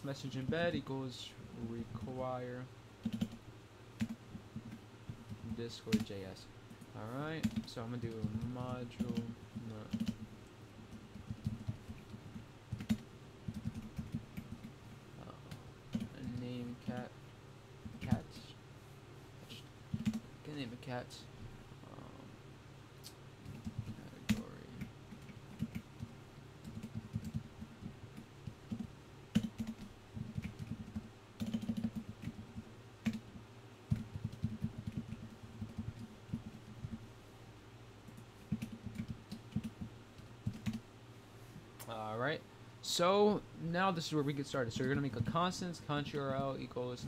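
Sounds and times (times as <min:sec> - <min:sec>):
typing on computer keyboard: 0:03.0 - 0:03.4, 0:04.0 - 0:06.1, 0:07.4 - 0:10.3, 0:10.9 - 0:14.7, 0:15.5 - 0:17.0, 0:19.9 - 0:20.2, 0:23.4 - 0:33.2, 0:33.9 - 0:37.0, 0:38.1 - 0:40.8.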